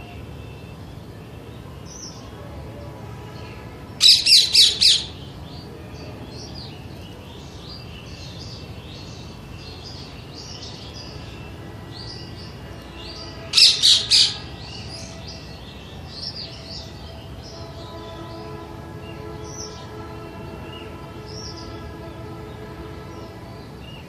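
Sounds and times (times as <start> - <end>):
birds chirping: 0.0 - 24.0
parakeet shrill screeches: 4.0 - 5.2, 13.5 - 14.5.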